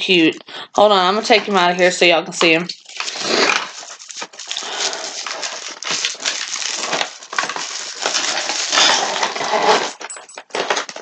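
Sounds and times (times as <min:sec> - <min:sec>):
plastic packaging crinkling: 0:02.7 - 0:11.0.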